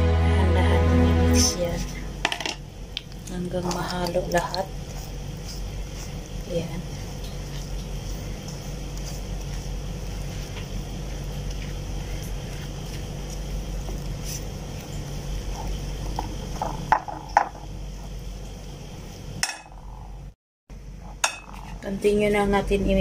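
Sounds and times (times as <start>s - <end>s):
low background hum: 0.0s - 23.0s
spatula scraping batter in bowl: 3.6s - 16.9s.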